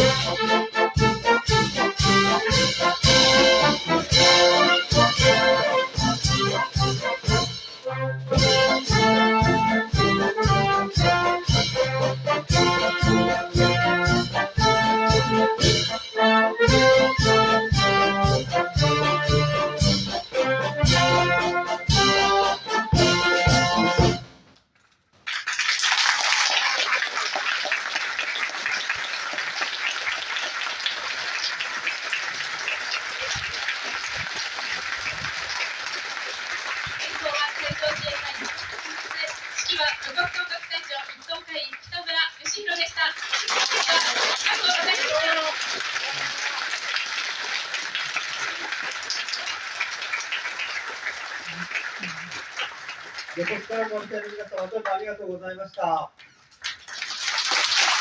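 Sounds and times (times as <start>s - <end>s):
audience applause: 25.2s - 55.4s, 56.5s - 58.0s.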